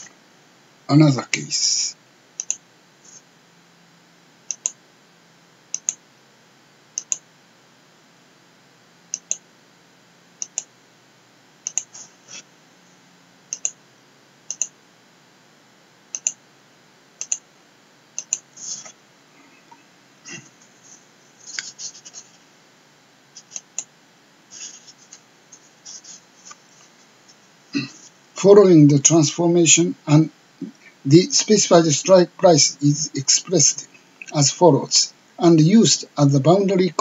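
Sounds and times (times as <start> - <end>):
faint background hiss: 0.0 - 37.0
computer mouse clicking: 2.4 - 2.6, 4.5 - 4.8, 5.7 - 6.0, 7.0 - 7.2, 9.1 - 9.4, 10.4 - 10.7, 11.6 - 12.0, 13.5 - 13.8, 14.5 - 14.7, 16.1 - 16.4, 17.2 - 17.4, 18.2 - 18.5, 23.4 - 23.9.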